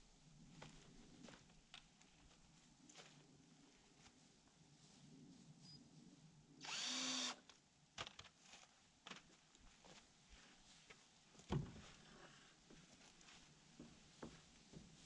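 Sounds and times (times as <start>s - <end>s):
cordless drill spinning: 6.6s - 7.4s.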